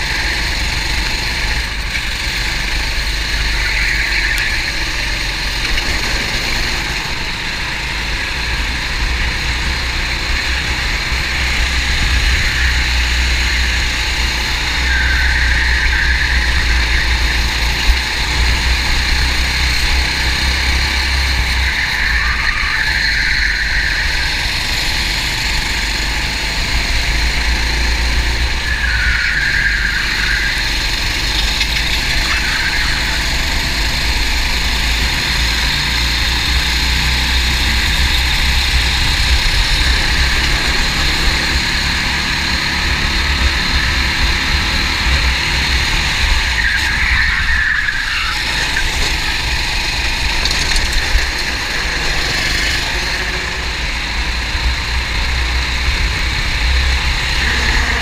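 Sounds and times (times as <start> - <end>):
kart engine running: 0.0 - 58.0
road and vibration noise: 0.0 - 58.0.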